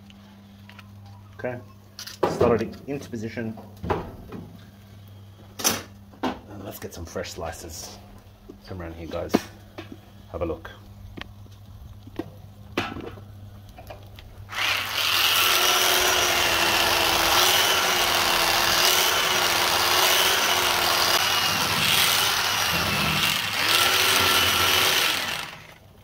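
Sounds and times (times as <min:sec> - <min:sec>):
electric knife motor buzzing: 0:14.5 - 0:25.9.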